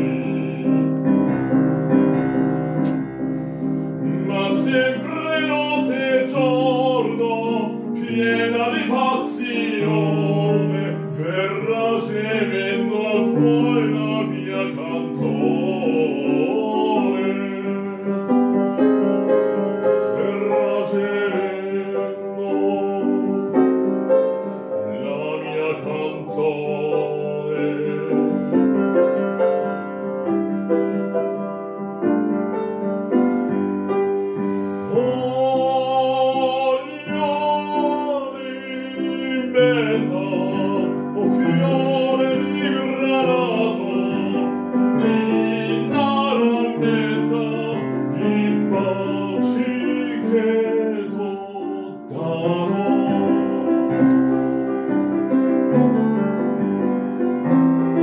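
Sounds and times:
man singing operatically: 0.0 - 1.4, 4.0 - 23.8, 24.5 - 29.4, 34.4 - 54.8
grand piano accompaniment: 0.0 - 58.0.

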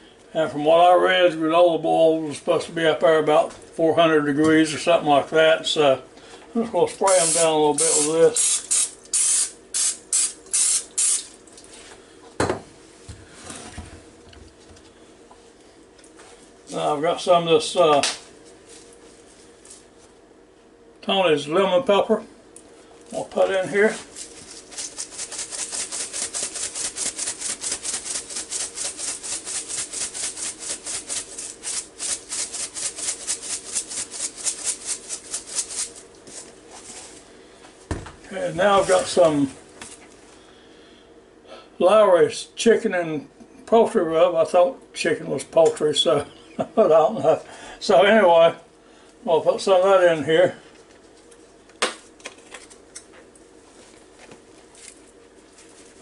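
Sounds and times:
aerosol spray hiss: 7.2 - 11.2
seasoning rattling in shaker jar: 24.2 - 36.0.

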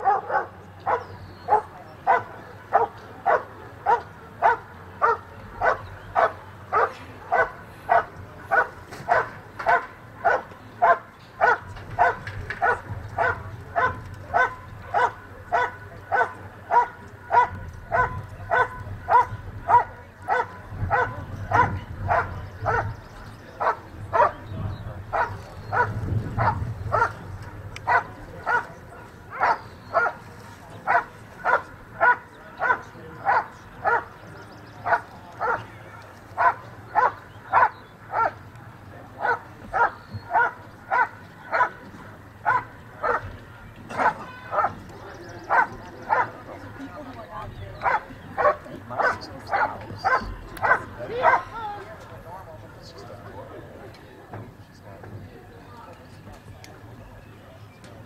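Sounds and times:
dog barking rhythmically: 0.0 - 22.9, 25.2 - 27.2, 30.9 - 34.1, 36.4 - 38.3, 39.2 - 41.7, 42.4 - 43.3, 47.8 - 51.5.

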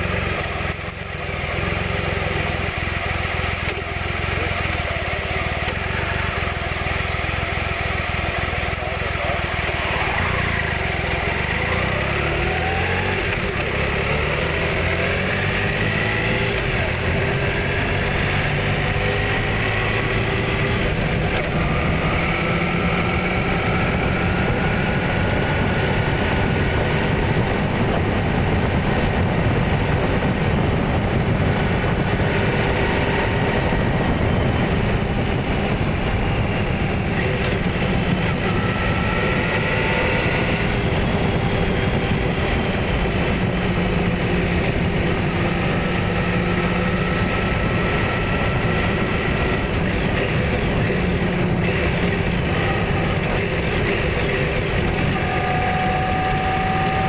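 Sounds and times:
heavy wind: 0.0 - 57.0
road rumble: 0.0 - 57.0
vehicle engine running: 0.0 - 57.0.

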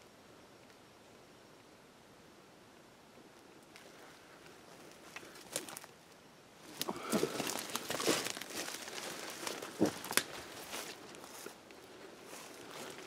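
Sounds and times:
leaves rustling underfoot: 3.4 - 13.0
twig snaps: 9.8 - 10.4.

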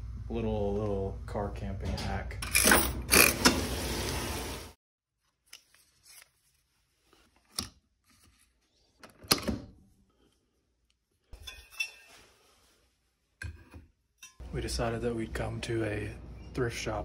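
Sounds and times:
coffee machine brewing hiss: 3.1 - 4.8.

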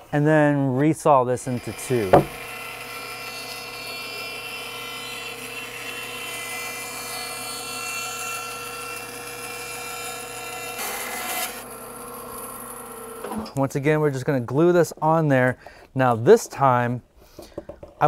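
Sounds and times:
bandsaw running: 1.4 - 13.3.

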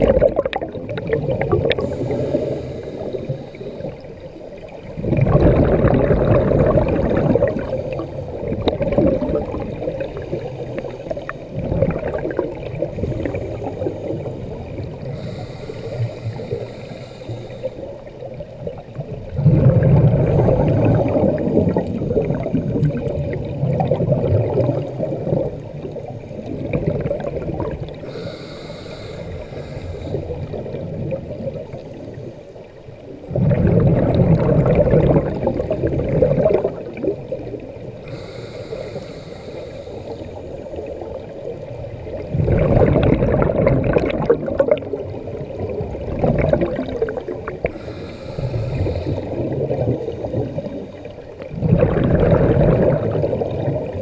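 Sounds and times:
exhaled bubbles gurgling: 0.0 - 54.0
regulator inhale hiss: 1.7 - 4.4, 10.2 - 11.6, 13.0 - 18.3, 27.9 - 30.9, 37.9 - 41.2, 47.6 - 51.4.

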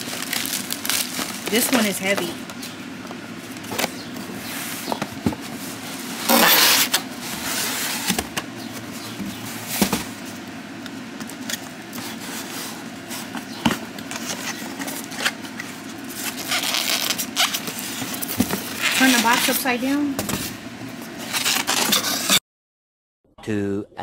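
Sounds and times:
cardboard box scraping and rustling: 3.7 - 10.4, 16.1 - 19.8.

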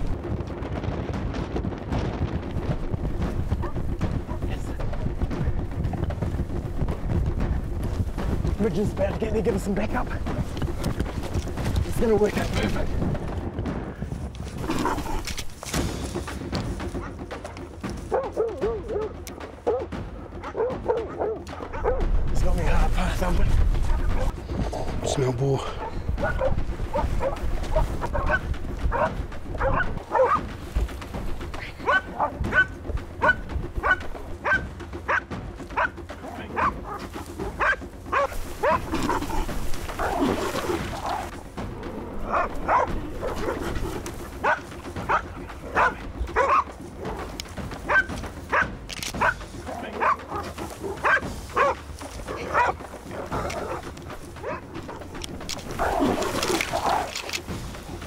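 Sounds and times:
dog barking: 18.1 - 22.1, 25.8 - 30.4, 31.8 - 36.0, 36.6 - 37.0, 37.6 - 39.4, 42.3 - 43.7, 44.4 - 46.7, 47.9 - 53.8, 54.4 - 55.0.

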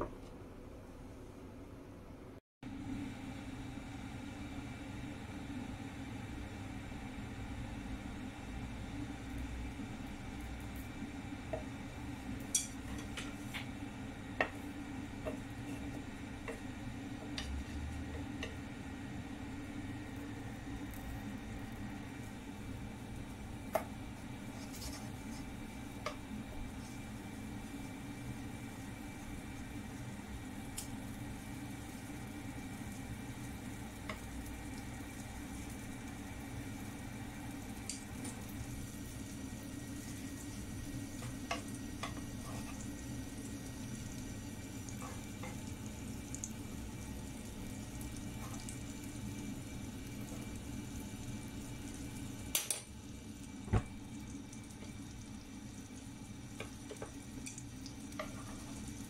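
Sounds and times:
steady low hum: 0.0 - 59.0
butter sizzling in wok: 3.0 - 59.0
heating wok ticking: 11.4 - 13.3, 14.3 - 23.8
chopsticks clicking on pan: 52.5 - 52.9.

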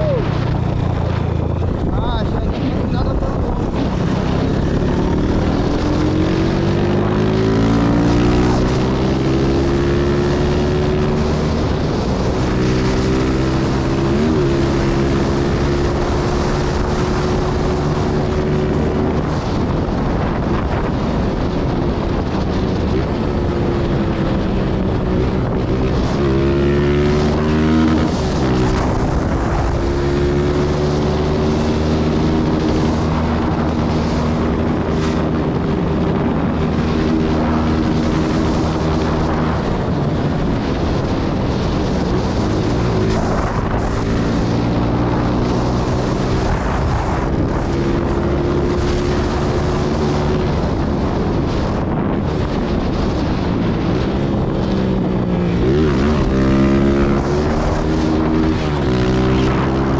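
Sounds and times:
motorcycle engine revving: 0.0 - 59.9
wind on microphone: 0.0 - 59.9.

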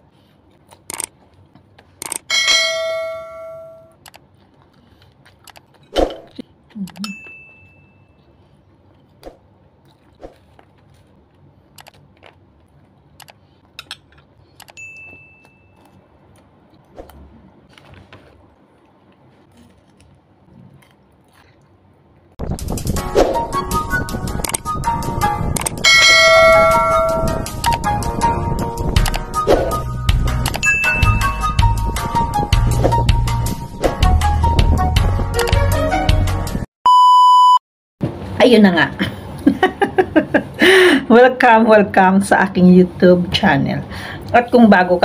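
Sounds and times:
person chewing food: 4.2 - 14.7, 15.7 - 22.4
notification ding: 30.6 - 31.4
short high beeps: 36.9 - 37.6.

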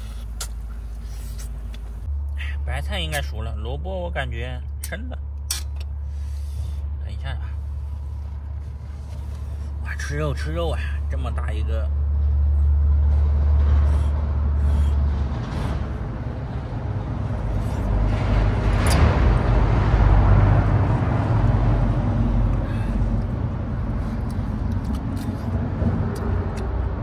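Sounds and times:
traffic rumble: 0.0 - 27.0
vehicle passing: 11.6 - 27.0.

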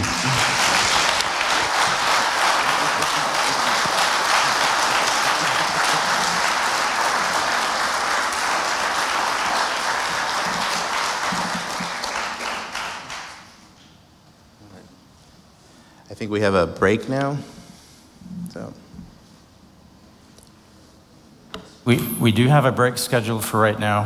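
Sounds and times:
audience applauding: 0.0 - 13.6.

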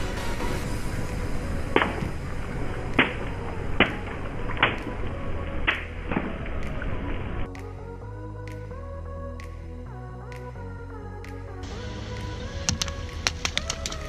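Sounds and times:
water splashing: 0.0 - 7.5
water balloons bursting: 1.5 - 7.3.

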